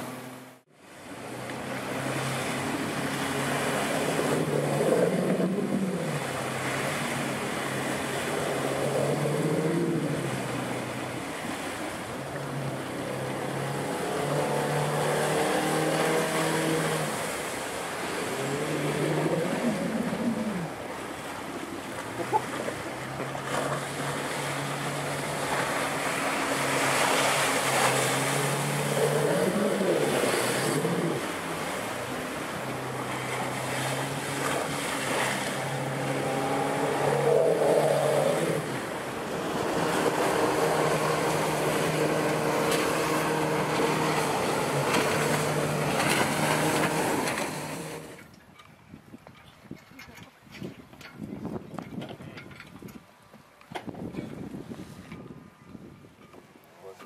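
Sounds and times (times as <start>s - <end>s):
outboard motor running: 0.0s - 48.3s
wind: 0.0s - 57.0s
water spray rushing: 1.8s - 21.1s, 22.0s - 48.2s.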